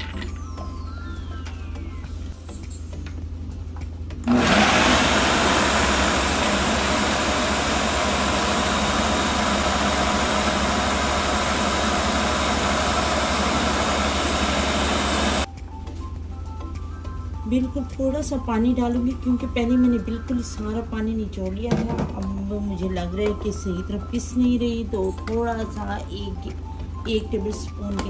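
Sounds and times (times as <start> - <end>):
blender motor grinding: 4.2 - 15.5.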